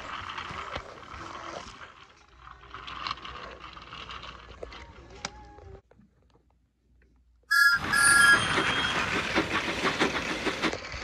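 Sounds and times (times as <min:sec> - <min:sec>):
toy train rolling on plastic track: 0:00.0 - 0:05.8, 0:07.5 - 0:11.0
wheel clicks on track: 0:07.5 - 0:11.0.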